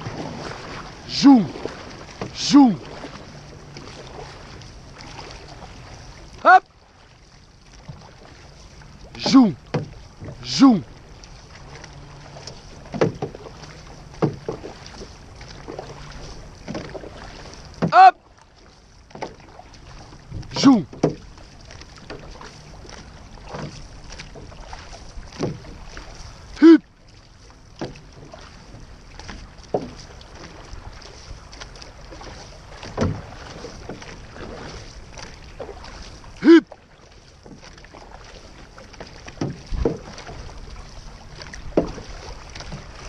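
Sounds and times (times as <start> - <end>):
paddle strokes in water: 0.0 - 43.0
water rushing along hull: 0.0 - 43.0.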